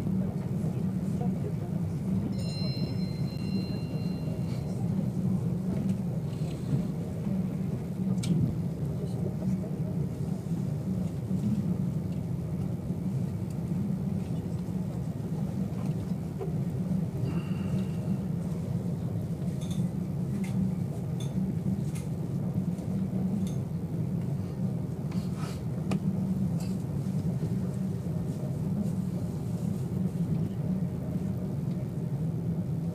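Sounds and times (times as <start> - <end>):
train interior low rumble: 0.0 - 32.9.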